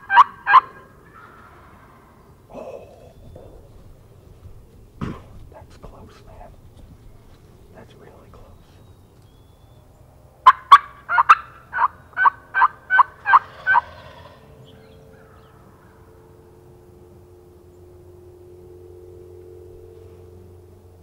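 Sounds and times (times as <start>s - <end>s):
turkey yelps: 0.0s - 2.2s, 10.4s - 16.0s.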